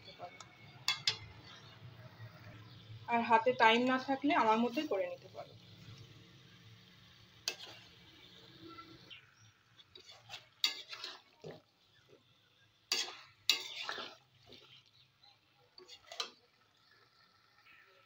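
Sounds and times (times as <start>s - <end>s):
spatula scraping food in pan: 7.1s - 17.8s.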